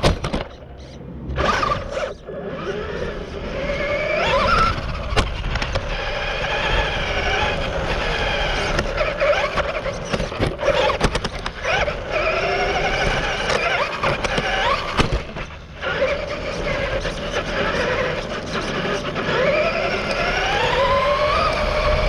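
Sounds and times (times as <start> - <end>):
rc car motor whine: 0.0 - 22.0
knocks and rattles from bumps: 8.7 - 11.9.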